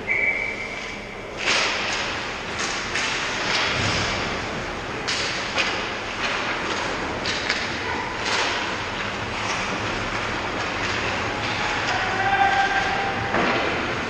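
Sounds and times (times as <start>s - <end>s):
skate blades scraping ice: 1.4s - 14.0s
sticks knocking puck: 5.0s - 14.0s.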